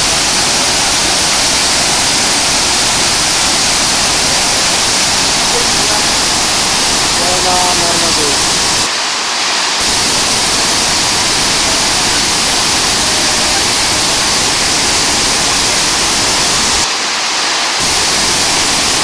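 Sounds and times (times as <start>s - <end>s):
waterfall rushing: 0.0s - 19.0s.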